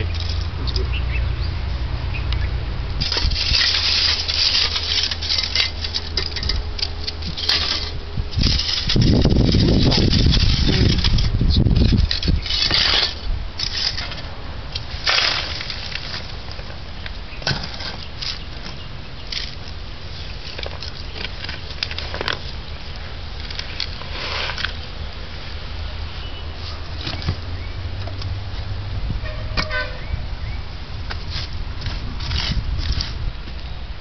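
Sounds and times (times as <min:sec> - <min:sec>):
charcoal clinking and crunching: 0:03.0 - 0:24.9
bricks and sand scraping: 0:03.0 - 0:25.1, 0:31.1 - 0:33.6.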